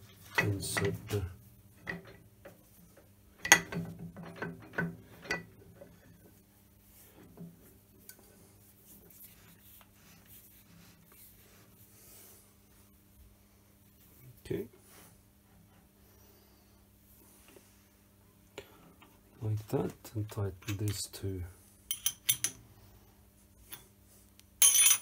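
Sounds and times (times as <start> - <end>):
metal-on-metal clanks and knocks: 0.3 - 1.2, 3.4 - 5.9.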